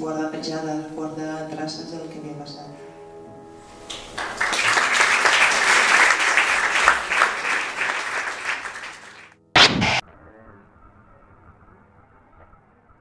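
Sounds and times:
audience applauding: 3.9 - 9.4
short loud noise burst: 9.6 - 10.0.

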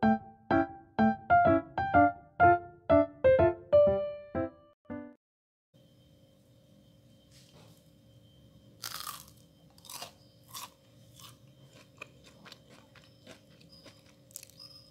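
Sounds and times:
crunching crispy food: 8.8 - 14.9.

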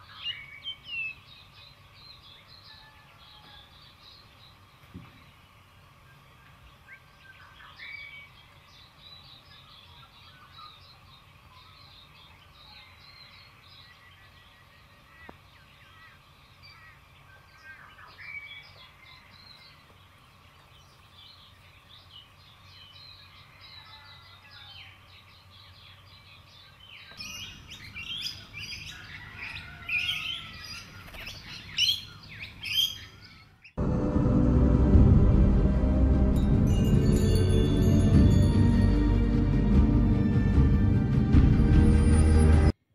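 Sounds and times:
bird chirps: 0.0 - 33.8
quiet forest background: 0.0 - 42.9.

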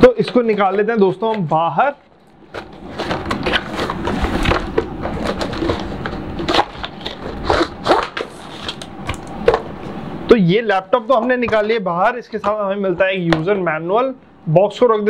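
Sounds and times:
cardboard scraping and rustling: 0.2 - 9.8.

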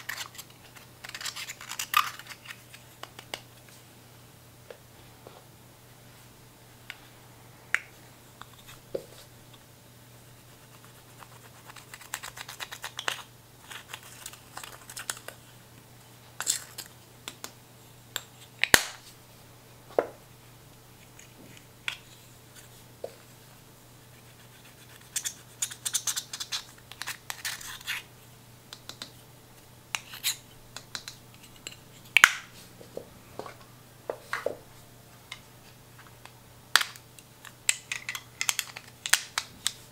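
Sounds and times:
rapid scratching of powder: 10.4 - 12.9
plastic compacts clicking: 36.8 - 39.8.

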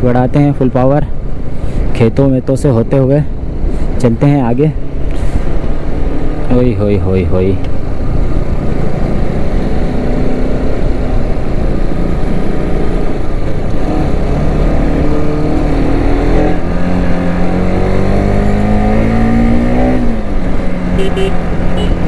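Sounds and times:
wind and road noise: 0.0 - 22.0
motorcycle engine running: 20.1 - 22.0.

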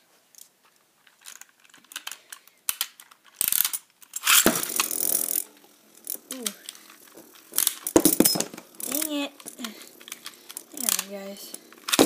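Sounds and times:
spinning top clacking in plastic bowl: 3.4 - 12.0
ripcord launcher zip: 4.2 - 12.0
spinning top scraping bowl: 4.2 - 12.0
light plastic clicks: 8.8 - 12.0.

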